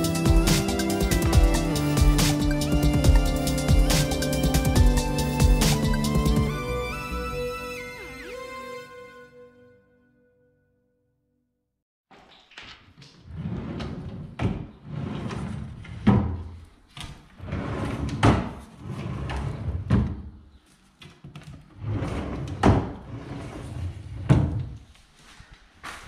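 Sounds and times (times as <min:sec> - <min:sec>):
drawer sliding on runners: 0:21.8 - 0:24.7.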